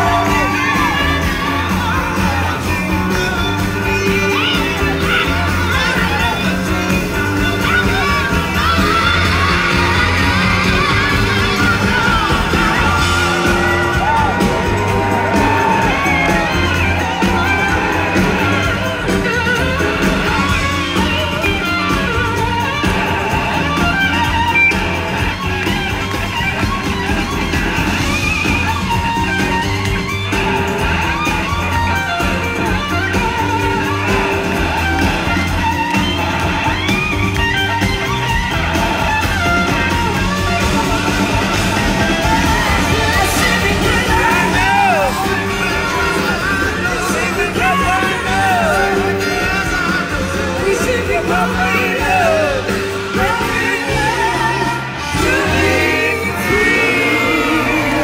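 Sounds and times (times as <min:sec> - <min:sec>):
bass line: 0:00.0 - 0:58.0
drums: 0:00.0 - 0:58.0
electric guitar: 0:00.0 - 0:58.0
person singing: 0:42.0 - 0:58.0.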